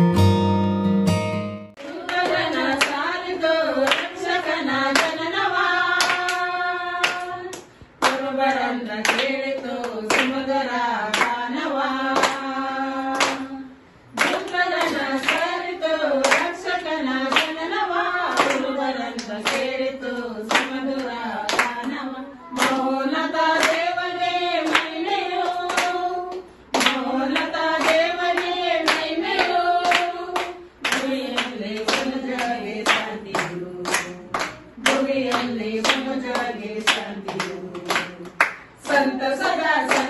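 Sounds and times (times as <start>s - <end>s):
hands clapping: 1.8s - 3.0s, 3.8s - 5.2s, 6.0s - 6.4s, 7.0s - 10.4s, 11.1s - 11.4s, 12.1s - 12.5s, 13.1s - 13.5s, 14.2s - 15.6s, 16.2s - 16.6s, 17.2s - 17.5s, 18.3s - 19.7s, 20.5s - 22.9s, 23.6s - 23.9s, 24.6s - 40.0s
women and children singing: 1.8s - 40.0s.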